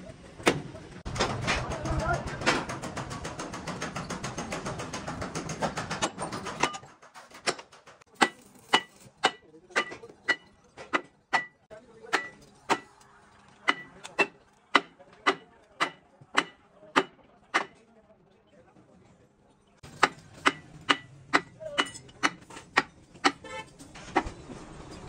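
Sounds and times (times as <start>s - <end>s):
hammer striking steel: 1.2s - 13.0s, 13.6s - 17.8s, 19.8s - 23.6s.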